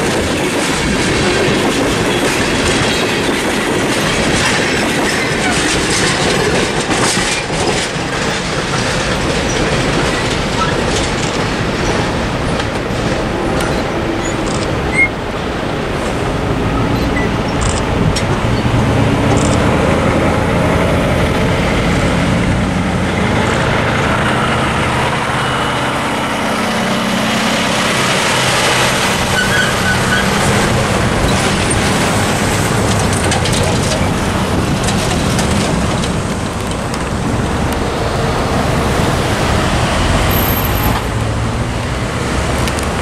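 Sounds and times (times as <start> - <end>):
vehicles passing close by: 10.0 - 43.0.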